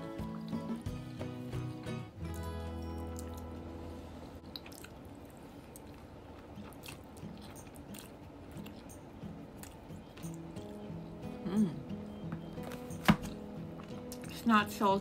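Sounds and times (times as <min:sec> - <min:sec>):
background music: 0:00.0 - 0:04.4
wet chewing: 0:04.4 - 0:10.7.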